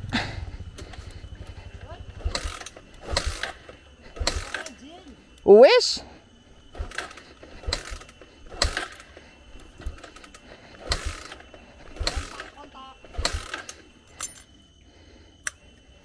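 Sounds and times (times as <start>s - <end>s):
motorcycle kick-starter clanking: 0.0s - 4.8s, 6.7s - 14.4s.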